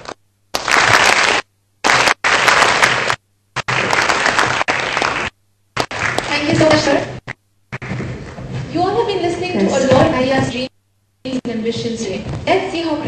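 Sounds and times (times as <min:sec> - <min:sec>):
audience applauding: 0:00.0 - 0:06.9.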